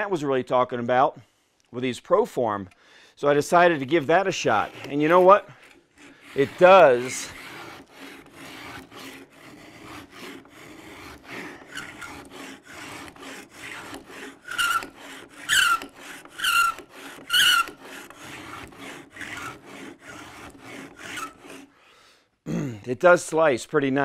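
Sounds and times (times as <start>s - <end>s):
blade shaving wood: 3.2s - 21.8s
high squeak of blade: 11.3s - 12.2s, 13.6s - 18.1s, 21.0s - 21.7s.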